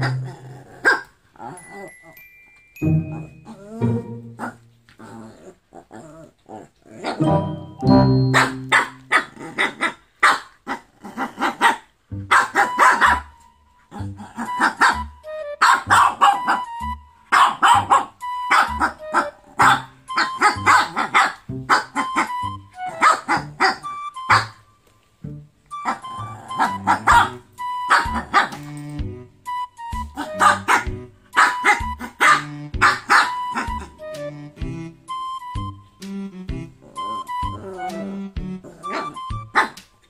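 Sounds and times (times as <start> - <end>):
puppy barking: 0.0 - 1.1, 3.2 - 4.8, 8.3 - 24.6, 25.8 - 28.7, 30.1 - 34.0, 38.7 - 39.9.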